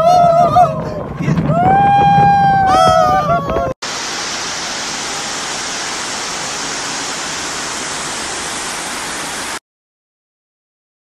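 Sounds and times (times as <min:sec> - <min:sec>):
fountain water running into basin: 0:03.8 - 0:09.6.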